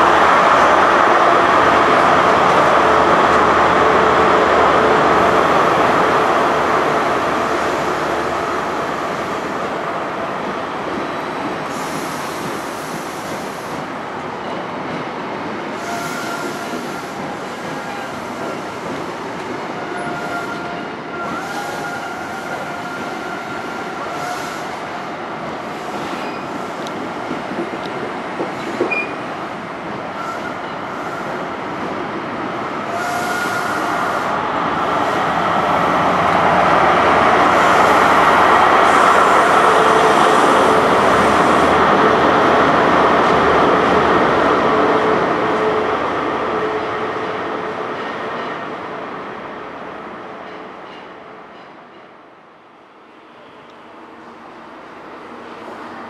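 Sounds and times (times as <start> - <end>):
diesel train running noise: 0.0 - 52.4.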